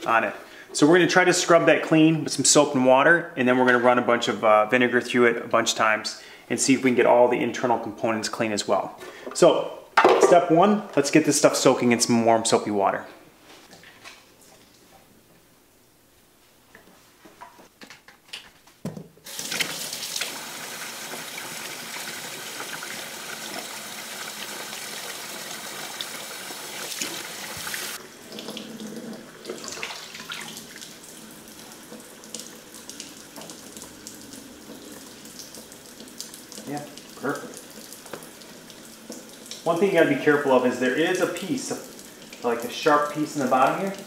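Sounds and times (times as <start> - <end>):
water running into a steel sink: 19.3 - 44.0
water splashing unevenly: 19.3 - 44.0.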